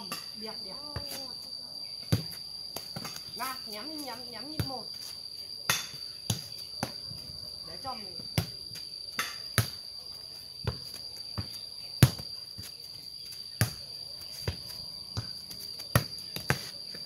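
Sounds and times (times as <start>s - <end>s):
insects shrilling: 0.0s - 17.0s
ball kicked with bare feet: 2.0s - 3.3s, 6.3s - 7.0s, 10.6s - 17.0s.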